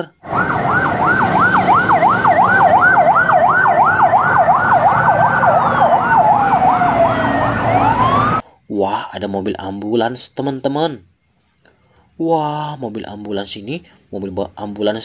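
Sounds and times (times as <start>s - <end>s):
low traffic rumble: 0.2s - 8.4s
siren fast yelp: 0.2s - 8.4s
siren slow wail: 0.2s - 8.4s.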